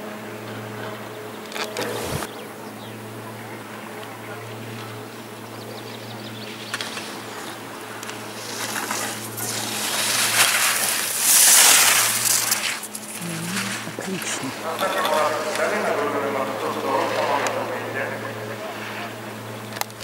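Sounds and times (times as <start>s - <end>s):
skis scraping on snow: 1.6s - 2.3s, 6.5s - 19.2s.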